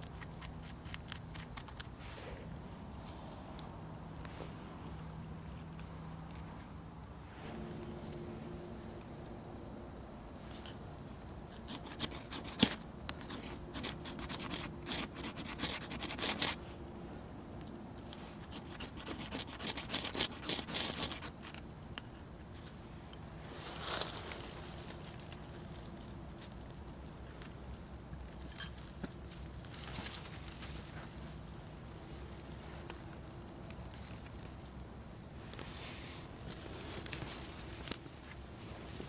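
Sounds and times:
tinder crackling and rustling: 23.4s - 39.0s.

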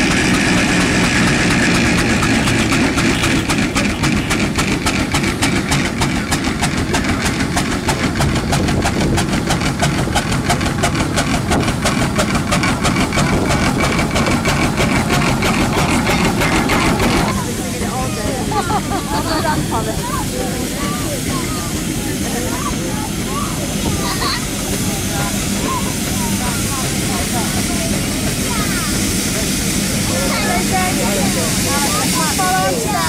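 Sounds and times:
steam roller exhaust chuffing: 0.0s - 33.0s.

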